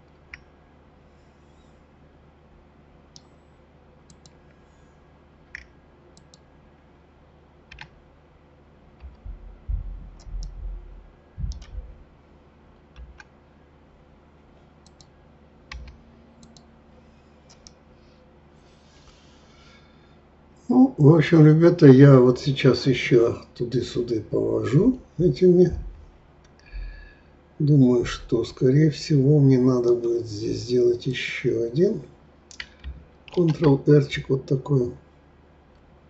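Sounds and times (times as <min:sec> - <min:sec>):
dull low thumps: 0:09.0 - 0:12.1, 0:25.2 - 0:27.0
mouse and keyboard clicks: 0:32.5 - 0:33.7.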